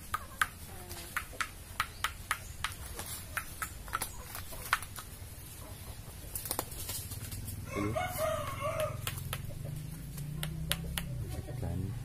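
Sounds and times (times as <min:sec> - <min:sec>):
rooster crowing: 0:07.6 - 0:09.2.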